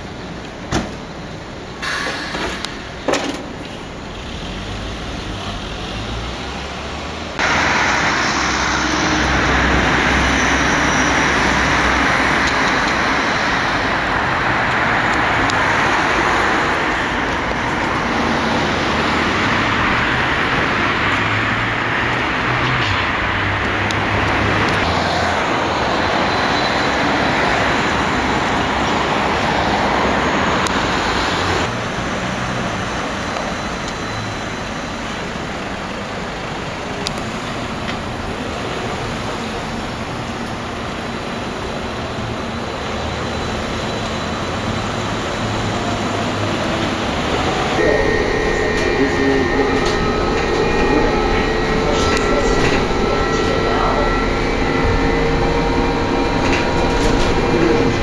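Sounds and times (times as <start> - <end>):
street traffic noise: 0.0 - 58.0
trolleybus driving off: 0.0 - 58.0
electric whine: 47.7 - 58.0.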